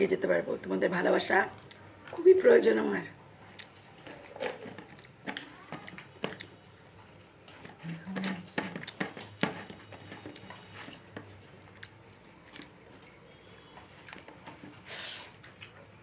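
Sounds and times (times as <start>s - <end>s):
mouth chewing and smacking: 3.4s - 9.4s.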